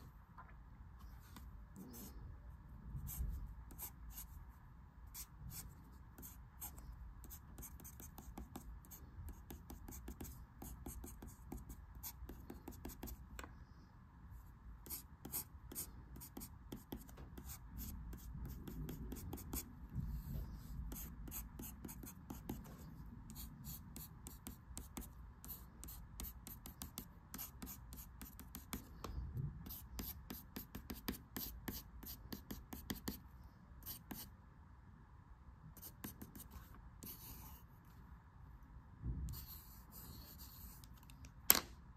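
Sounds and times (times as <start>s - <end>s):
pencil scratching on paper: 3.0s - 4.4s, 5.1s - 13.2s, 14.8s - 33.2s, 35.8s - 37.7s, 39.3s - 40.9s.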